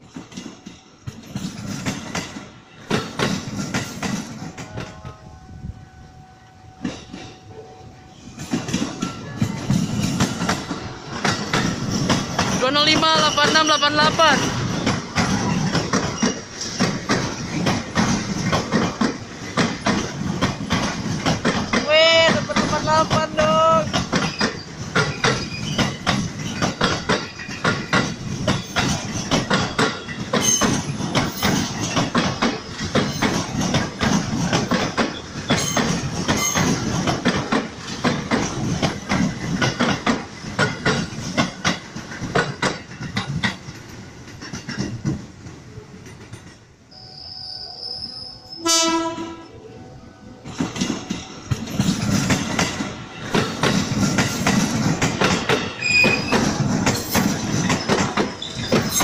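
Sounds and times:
train wheels clattering over rail joints: 0.0 - 5.1, 8.4 - 46.8, 50.4 - 59.0
train horn blast: 4.6 - 8.2, 47.0 - 50.4.

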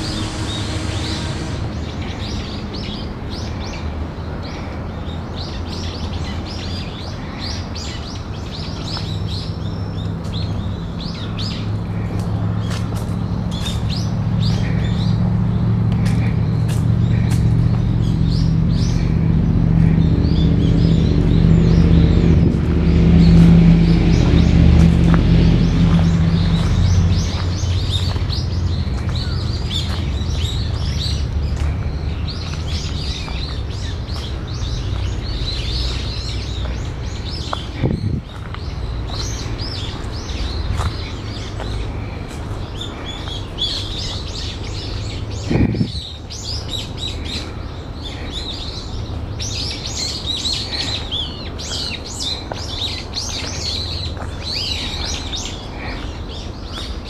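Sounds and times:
low rumble: 0.0 - 3.1, 10.4 - 43.2.

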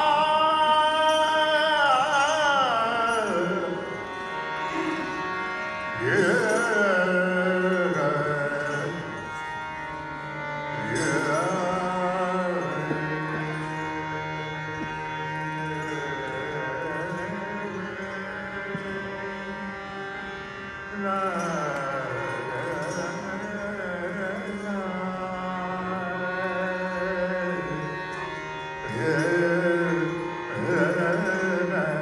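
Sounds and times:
men singing devotional song: 29.0 - 32.0.

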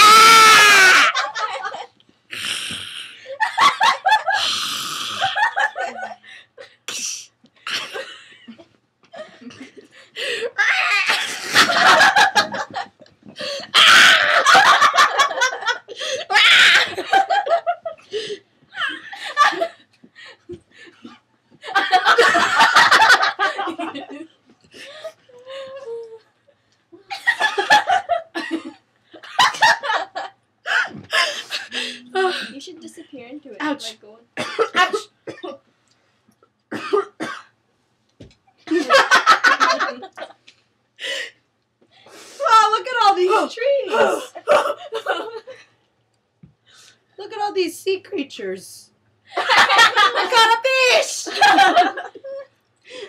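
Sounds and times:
girl laughing hard: 0.0 - 1.9, 10.2 - 19.8, 43.9 - 45.6, 49.4 - 52.5
girls laughing and giggling: 0.0 - 2.0, 3.3 - 4.6, 5.2 - 6.8, 7.8 - 32.6, 38.6 - 40.5, 42.5 - 45.8, 49.3 - 53.0.

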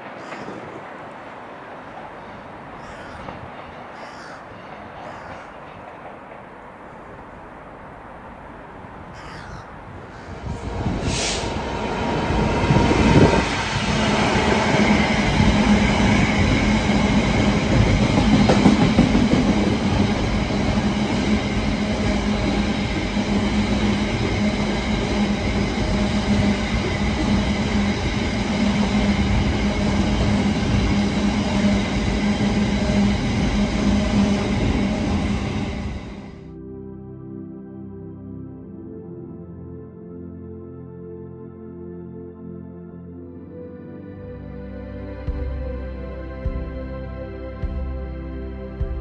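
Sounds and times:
freight train wheels rumbling on rails: 0.0 - 7.6, 9.9 - 36.4.

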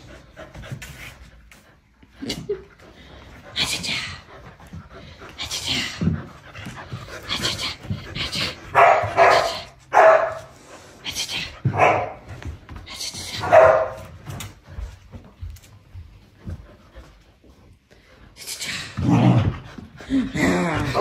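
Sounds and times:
dogs barking: 8.7 - 10.5, 11.7 - 12.3, 13.4 - 14.0.

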